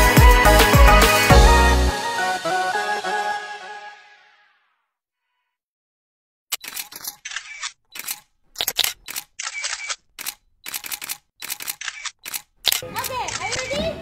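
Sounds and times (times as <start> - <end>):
camera shutter clicks: 6.6 - 13.7.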